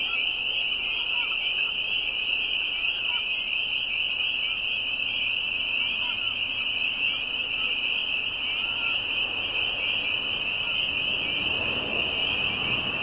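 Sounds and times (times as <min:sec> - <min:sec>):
faint lower frog calls: 0:00.0 - 0:13.0
frogs peeping chorus: 0:00.0 - 0:13.0.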